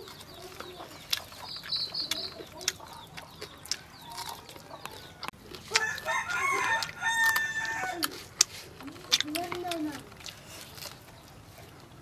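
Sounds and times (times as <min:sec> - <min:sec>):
rooster crowing: 0:03.8 - 0:08.2.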